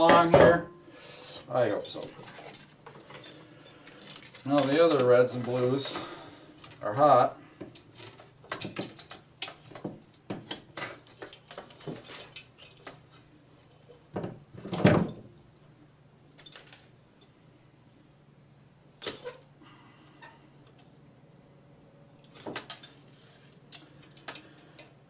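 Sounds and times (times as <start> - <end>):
tools clattering: 1.7 - 6.8.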